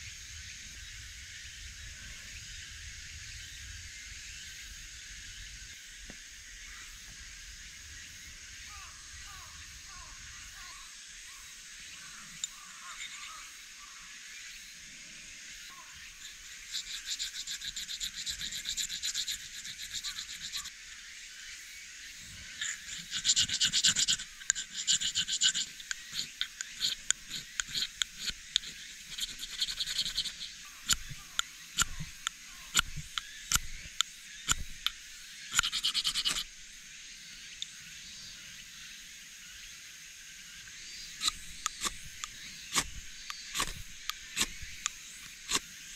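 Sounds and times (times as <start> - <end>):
striker rasping on fire-starter rod: 16.6 - 20.7, 22.6 - 36.5, 41.2 - 45.9.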